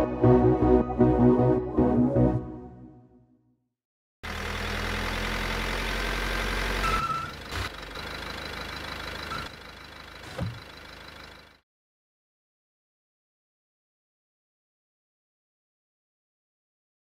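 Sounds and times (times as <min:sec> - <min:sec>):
van engine idling: 0:04.2 - 0:11.6.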